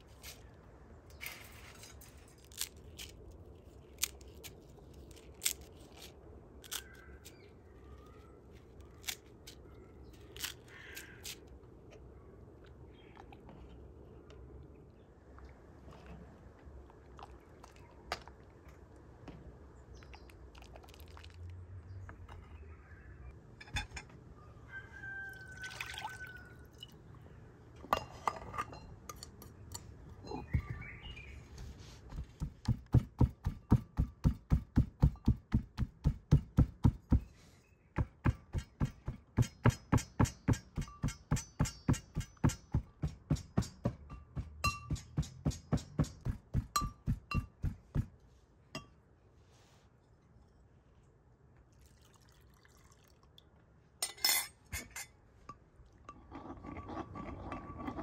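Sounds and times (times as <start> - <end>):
pestle pounding in brass mortar: 32.2 - 37.2, 38.0 - 48.1.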